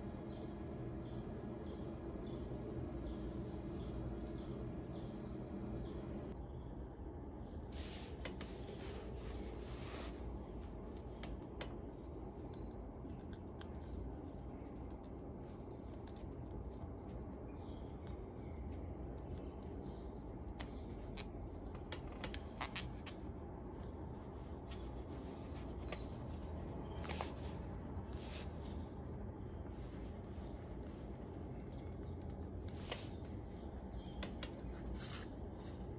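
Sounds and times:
low background hum: 0:00.0 - 0:35.9
awl and thread clicks and scrapes: 0:18.0 - 0:28.9.

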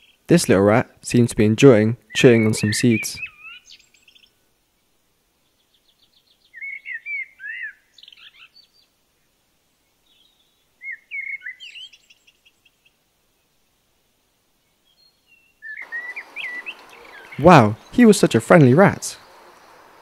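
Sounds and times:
songbird chirping and whistling: 0:02.1 - 0:04.4, 0:05.4 - 0:08.9, 0:10.0 - 0:13.0, 0:14.6 - 0:18.4.

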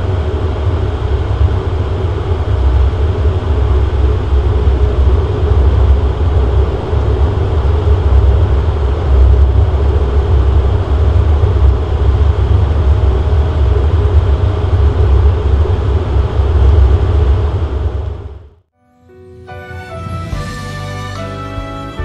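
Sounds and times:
faint steady hum: 0:00.0 - 0:18.6
turboprop engines low drone: 0:00.0 - 0:18.7.

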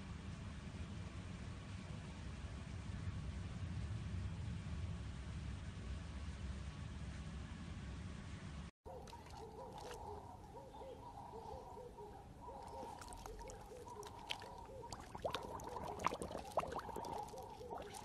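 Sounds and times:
dog lapping water: 0:09.0 - 0:10.2, 0:12.5 - 0:18.0.

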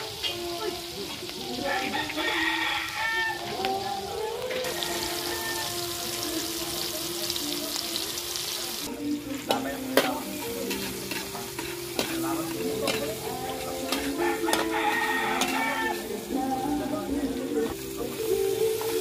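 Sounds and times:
food sizzling in oil: 0:00.0 - 0:19.0
metal spatula scraping wok: 0:09.3 - 0:17.2.

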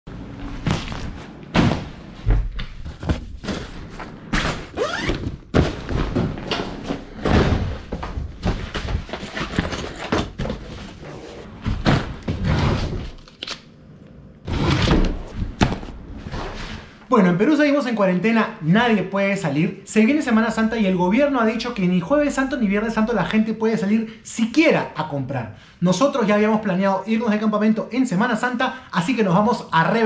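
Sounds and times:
fabric rustling: 0:00.3 - 0:07.1
zipper pulled: 0:04.4 - 0:05.3.

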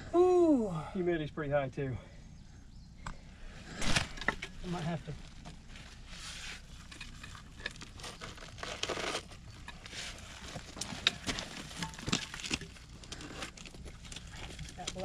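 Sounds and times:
clay and gravel crumbling: 0:03.8 - 0:15.0.

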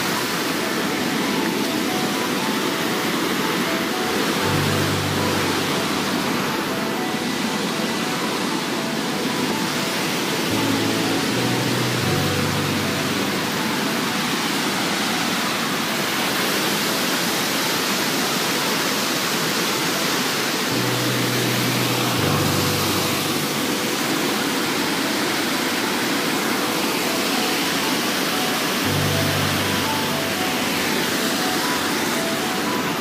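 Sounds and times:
low sustained tones: 0:00.0 - 0:33.0
waterfall rushing over rock: 0:00.0 - 0:33.0.

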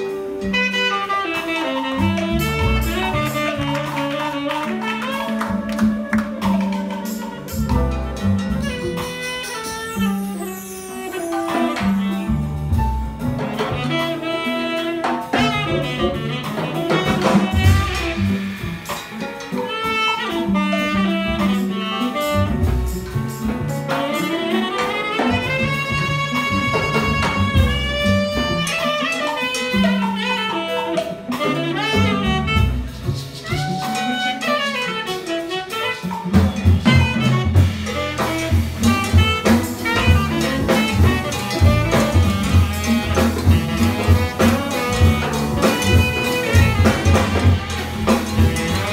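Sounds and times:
drums: 0:00.0 - 0:48.9
piano: 0:00.0 - 0:48.9
tenor saxophone melody: 0:00.0 - 0:48.9
hand percussion: 0:01.2 - 0:48.9
upright bass: 0:02.0 - 0:09.2, 0:11.8 - 0:14.4, 0:15.3 - 0:19.5, 0:22.4 - 0:24.1, 0:25.3 - 0:28.9, 0:31.2 - 0:34.1, 0:36.1 - 0:48.9.

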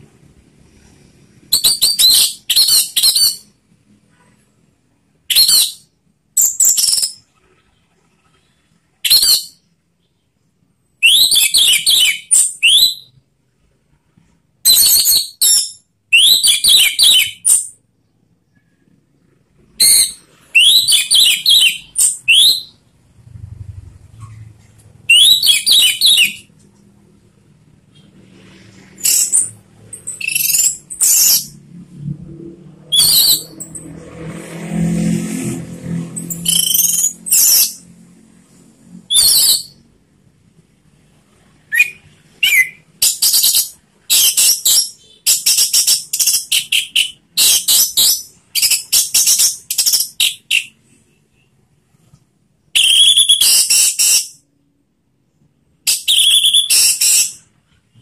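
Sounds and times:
bird singing whistles and trills: 0:01.5 - 0:03.5, 0:05.3 - 0:05.8, 0:06.4 - 0:07.2, 0:09.0 - 0:09.6, 0:11.0 - 0:13.2, 0:14.7 - 0:17.8, 0:19.8 - 0:22.8, 0:25.1 - 0:26.5, 0:29.0 - 0:31.6, 0:32.9 - 0:33.8, 0:36.2 - 0:37.8, 0:39.0 - 0:39.8, 0:41.7 - 0:51.5, 0:52.8 - 0:54.4, 0:55.9 - 0:57.4.

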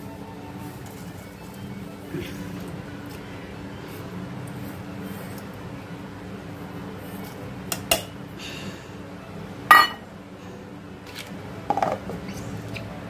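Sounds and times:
metal bowls knocking: 0:09.7 - 0:10.0, 0:11.7 - 0:12.2
metallic clank with ring: 0:09.7 - 0:10.0.

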